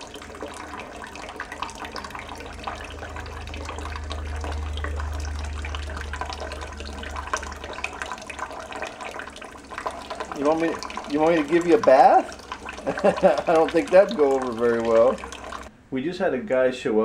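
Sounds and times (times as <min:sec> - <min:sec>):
faucet stream splashing into water: 0:00.0 - 0:15.7
low rumble: 0:01.6 - 0:10.0.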